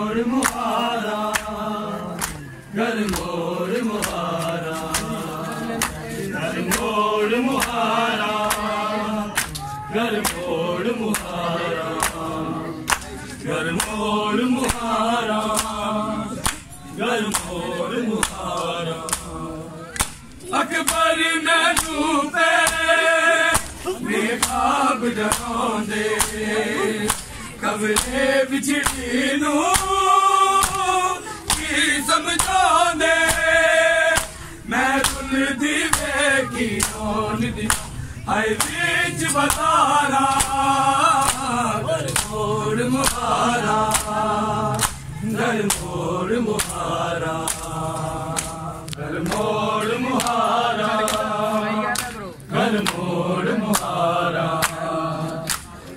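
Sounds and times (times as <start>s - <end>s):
men chanting a lament in chorus: 0.0s - 55.9s
hands slapping on bare chests: 0.4s - 3.4s, 4.0s - 6.0s, 6.6s - 6.9s, 7.5s - 7.8s, 8.4s - 10.5s, 11.1s - 12.2s, 12.8s - 13.2s, 13.8s - 14.0s, 14.6s - 15.8s, 16.4s - 17.6s, 18.2s - 21.1s, 21.7s - 22.0s, 22.6s - 22.9s, 23.5s - 28.2s, 28.8s - 29.1s, 29.7s - 31.8s, 32.4s - 36.2s, 36.8s - 37.0s, 37.7s - 38.0s, 38.6s - 38.8s, 39.4s - 40.6s, 41.2s - 42.4s, 43.0s - 46.0s, 46.6s - 46.8s, 47.4s - 49.5s, 50.2s - 50.4s, 51.0s - 51.3s, 51.9s - 52.2s, 52.8s - 53.0s, 53.7s - 54.0s, 54.6s - 54.8s, 55.4s - 55.8s.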